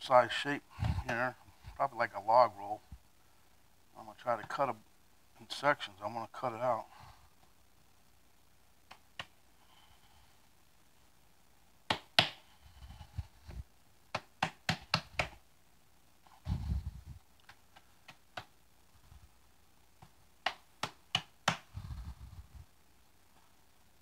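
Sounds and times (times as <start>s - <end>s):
dough slapping on a mat: 11.9s - 12.5s, 14.1s - 15.4s, 20.0s - 21.7s
dull thumping of dough: 11.9s - 12.5s, 13.5s - 15.4s.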